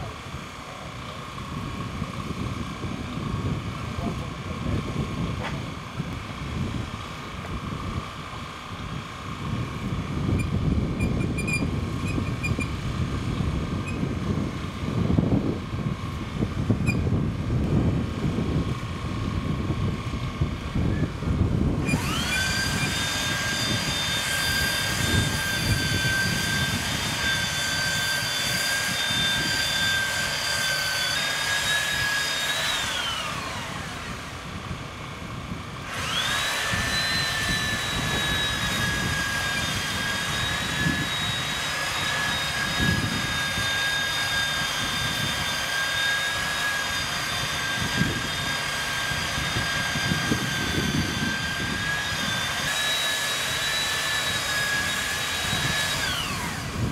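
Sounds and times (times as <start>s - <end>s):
biscuit joiner motor whining: 0.0s - 56.9s.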